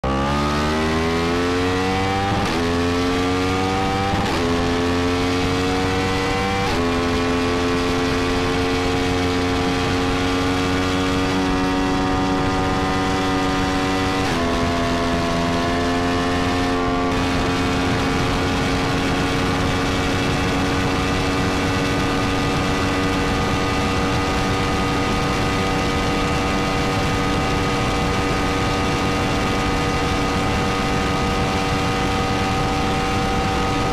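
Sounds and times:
motorcycle engine at full throttle: 0.0s - 33.9s.

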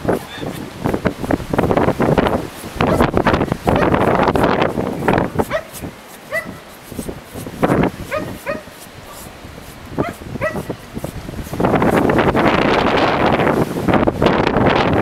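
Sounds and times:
wind on microphone: 0.0s - 15.0s
dog yipping: 2.9s - 3.1s, 5.4s - 6.6s, 8.1s - 9.3s, 10.0s - 10.8s.

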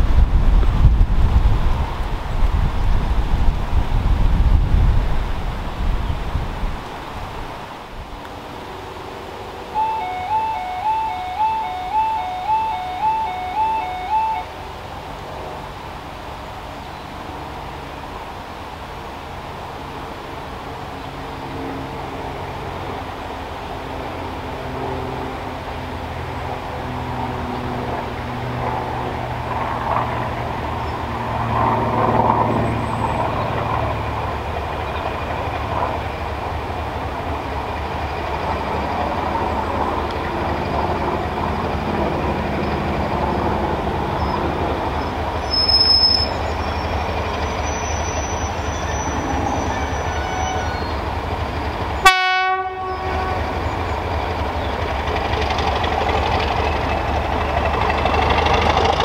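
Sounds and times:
diesel locomotive engine drone: 0.0s - 59.0s
train horn toot: 9.7s - 14.6s, 47.8s - 51.0s, 52.0s - 53.8s.

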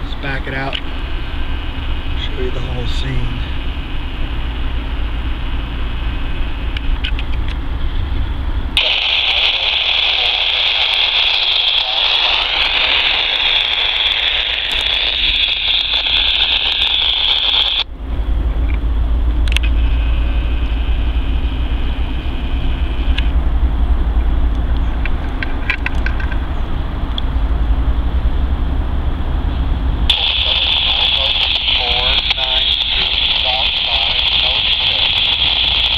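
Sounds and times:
diesel locomotives idling: 0.0s - 35.9s
loud high hiss: 8.8s - 17.8s, 30.1s - 35.9s.

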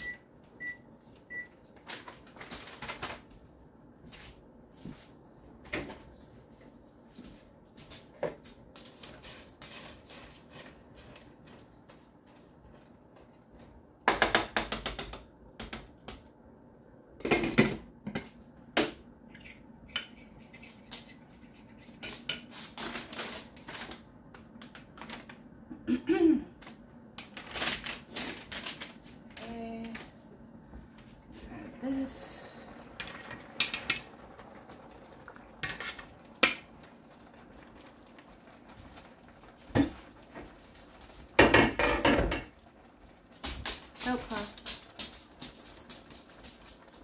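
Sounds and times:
utensils clattering against pots: 41.3s - 42.6s.

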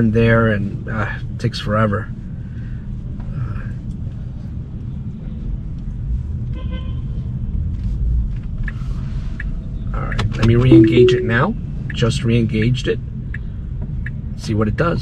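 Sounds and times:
city traffic rumble: 0.0s - 10.7s.

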